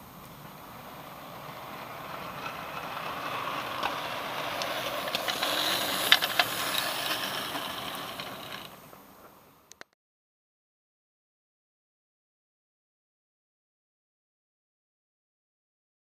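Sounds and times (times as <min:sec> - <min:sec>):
model train running on track: 0:00.0 - 0:09.4.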